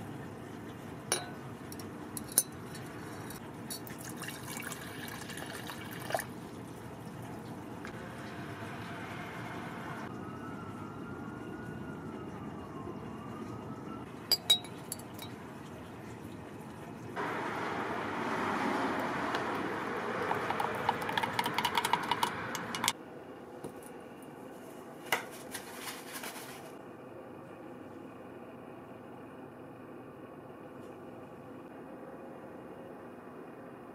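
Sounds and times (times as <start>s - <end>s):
faint siren wailing: 7.3s - 14.2s, 17.1s - 23.0s.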